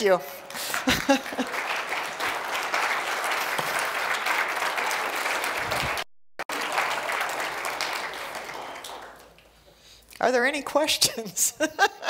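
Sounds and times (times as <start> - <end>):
audience applauding: 0.5 - 9.6.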